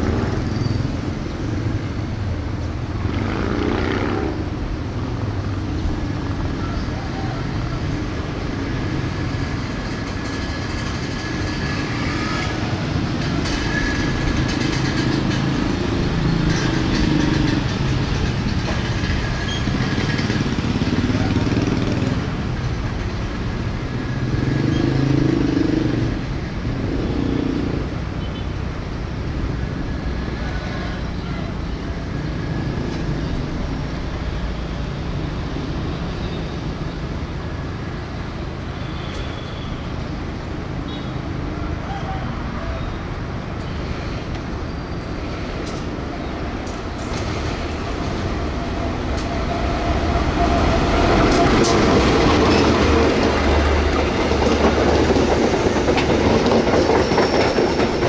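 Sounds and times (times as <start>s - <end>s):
motorcycle engines: 0.0s - 57.4s
diesel locomotive engine droning: 0.0s - 58.0s.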